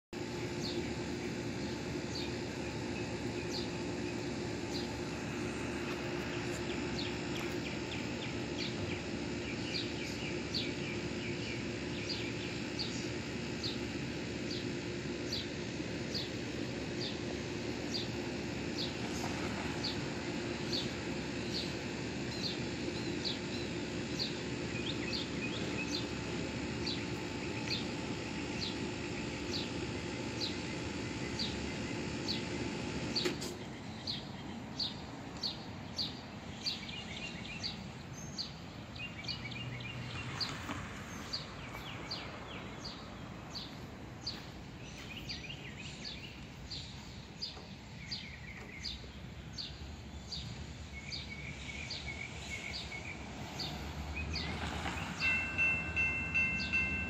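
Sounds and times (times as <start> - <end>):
low hum: 0.2 - 57.0
bird chirping: 33.2 - 57.0.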